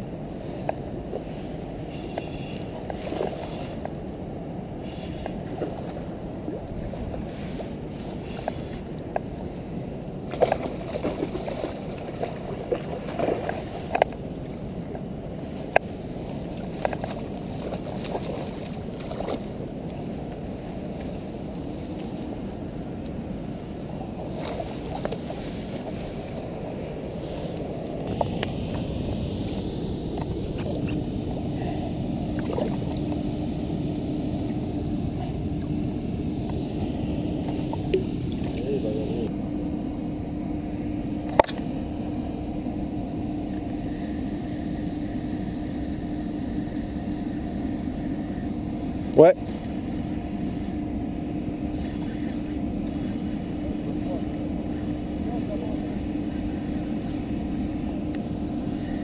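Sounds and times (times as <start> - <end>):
faint steady tone: 0.0 - 59.0
water at the bank: 0.0 - 59.0.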